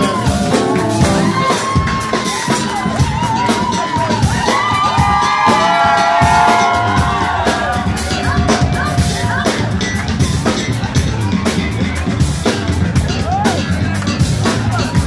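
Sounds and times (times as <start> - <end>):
long held high notes: 0.0 - 2.7
drums and bass: 0.0 - 15.0.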